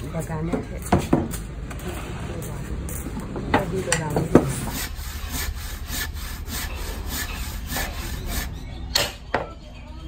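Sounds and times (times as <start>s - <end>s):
handsaw cutting wood: 4.4s - 8.8s.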